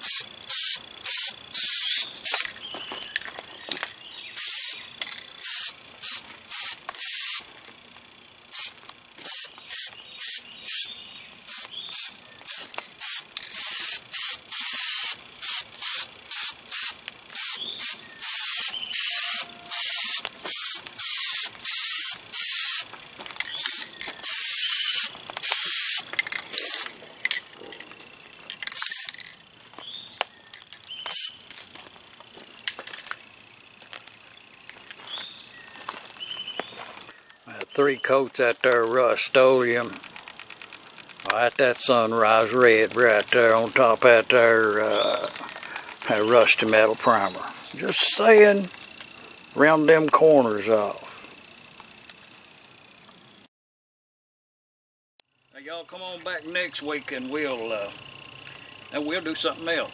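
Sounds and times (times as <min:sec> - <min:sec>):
spray paint can hissing: 0:00.0 - 0:02.6, 0:04.4 - 0:07.5, 0:08.4 - 0:27.0, 0:28.6 - 0:29.2, 0:31.1 - 0:31.5.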